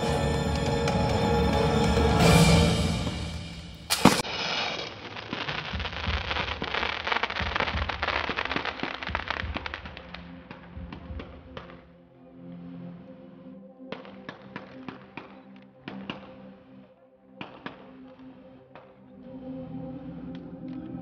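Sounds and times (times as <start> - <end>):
music soundtrack: 0.0 - 4.2, 6.8 - 21.0
fireworks crackling: 2.5 - 11.7
loud firework bang: 3.9 - 4.9.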